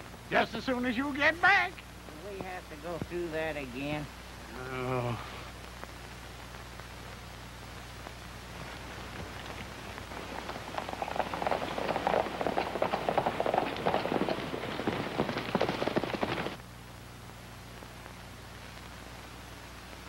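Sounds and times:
horses galloping: 8.6s - 16.6s.

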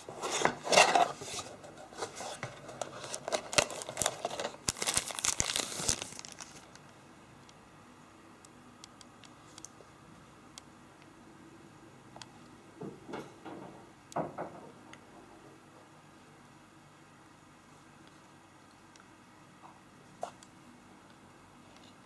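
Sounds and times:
cardboard packaging rustling: 0.0s - 6.8s.

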